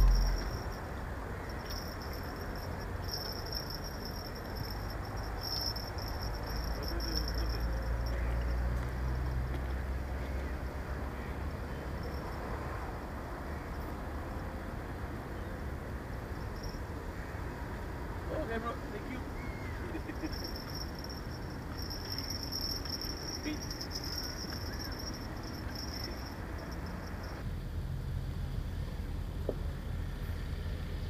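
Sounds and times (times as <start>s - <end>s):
low rumble: 0.0s - 0.8s
high-pitched chirring: 0.0s - 8.6s, 19.6s - 27.4s.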